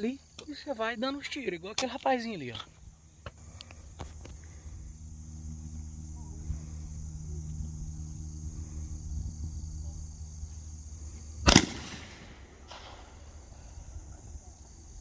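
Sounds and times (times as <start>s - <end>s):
shotgun shot with echo: 11.5s - 13.2s.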